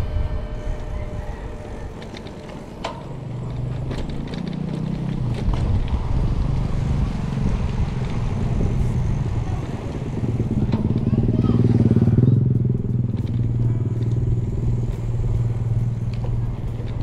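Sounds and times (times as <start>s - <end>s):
motorcycle engine running: 0.0s - 17.0s.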